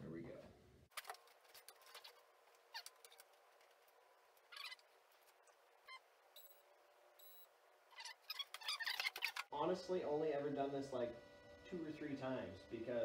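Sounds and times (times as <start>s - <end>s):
faint short squeaks: 7.2s - 9.5s.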